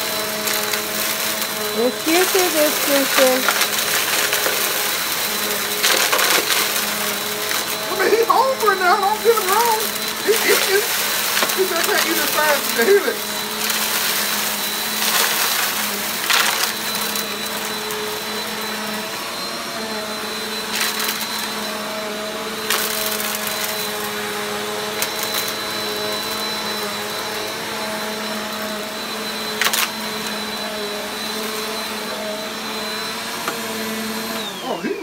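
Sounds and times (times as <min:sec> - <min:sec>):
debris cracking in vacuum: 0:00.0 - 0:18.0, 0:22.6 - 0:24.1, 0:29.5 - 0:30.0
vacuum cleaner whining: 0:00.0 - 0:35.0.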